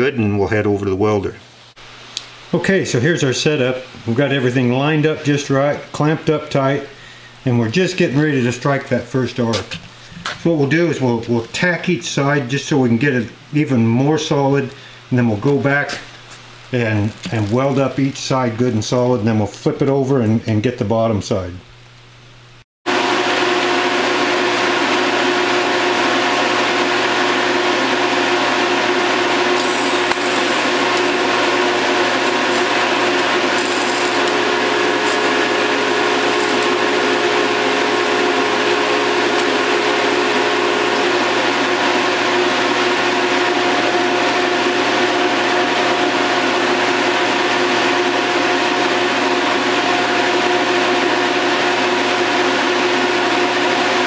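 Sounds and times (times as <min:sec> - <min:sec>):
welding rig humming and hissing: 0:01.5 - 0:02.6, 0:14.5 - 0:19.1, 0:21.7 - 0:54.0.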